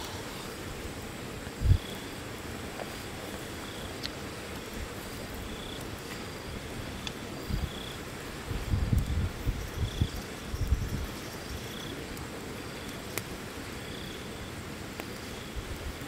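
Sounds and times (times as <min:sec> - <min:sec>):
campfire crackling: 0:00.0 - 0:16.0
steady background hiss: 0:00.0 - 0:16.0
high insect chirps: 0:08.8 - 0:12.0.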